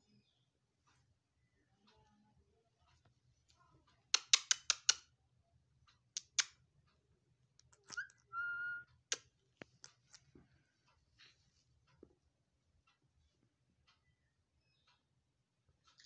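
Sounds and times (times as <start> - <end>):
parakeet screeching: 7.9 - 8.9
parakeet whistle: 7.9 - 9.0.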